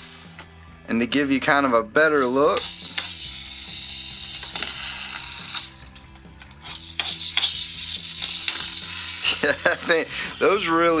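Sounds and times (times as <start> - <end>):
toy motorbike wheels whirring: 2.2 - 11.0.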